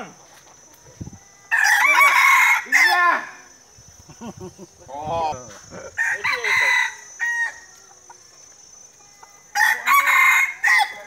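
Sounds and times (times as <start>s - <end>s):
rooster crowing: 1.4s - 3.2s, 5.9s - 8.0s, 8.8s - 11.0s.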